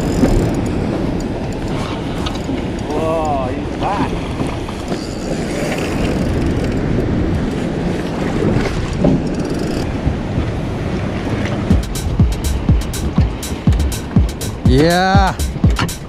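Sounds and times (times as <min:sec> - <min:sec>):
wind buffeting microphone: 0:00.0 - 0:14.1
water slapping a boat hull: 0:00.0 - 0:14.4
music with thumping beat: 0:11.7 - 0:16.0.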